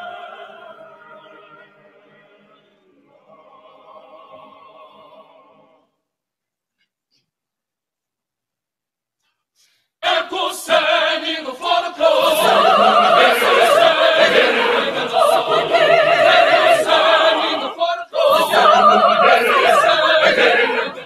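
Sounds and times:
choir singing unaccompanied: 0.0s - 5.9s, 10.0s - 21.0s.

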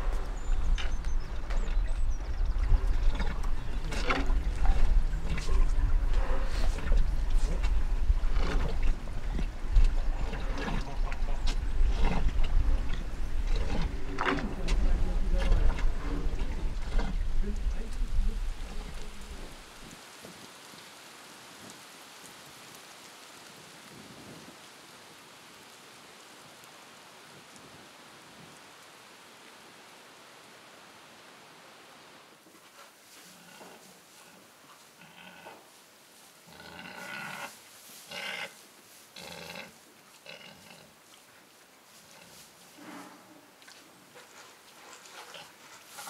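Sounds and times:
faint outdoor hiss: 0.0s - 46.0s
pig grunting: 36.5s - 37.5s.

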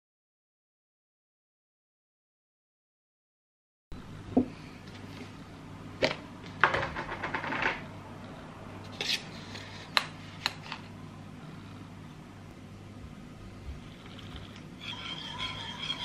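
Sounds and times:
low steady hum: 3.9s - 6.8s, 7.8s - 16.0s
metal spoon scraping in a tin: 14.8s - 16.0s.

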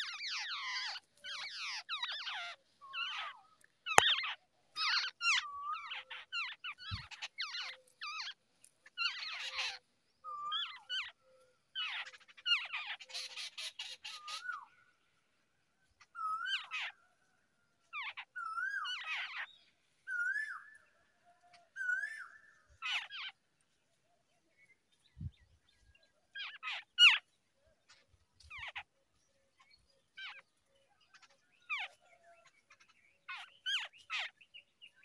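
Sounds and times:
nestlings squeaking and chattering: 0.0s - 9.8s, 11.8s - 14.7s, 15.9s - 17.0s, 17.9s - 19.6s, 22.8s - 23.4s, 26.3s - 27.3s, 27.9s - 29.0s, 29.6s - 30.5s, 31.1s - 35.0s
birds whistling: 0.0s - 15.0s, 16.0s - 17.0s, 18.0s - 23.4s, 24.6s - 35.0s.

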